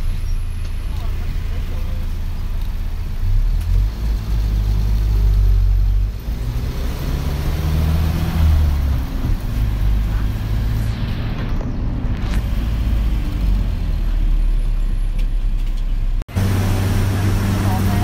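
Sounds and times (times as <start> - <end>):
vehicle engine and road rumble: 0.0 - 18.0.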